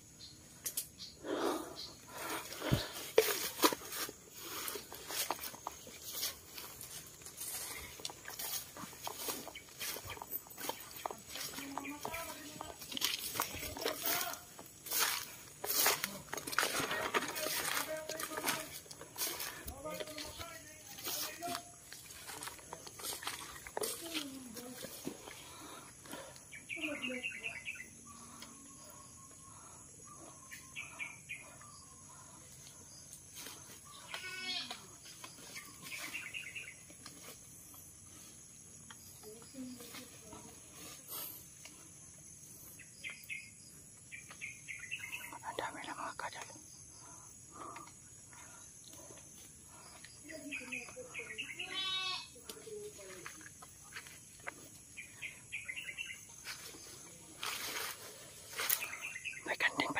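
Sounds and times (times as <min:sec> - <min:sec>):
birds chirping: 0:00.0 - 0:57.3, 0:58.0 - 0:59.9
bird chirps: 0:26.4 - 0:32.3, 0:35.2 - 0:36.9, 0:42.7 - 0:47.2, 0:54.9 - 0:56.8.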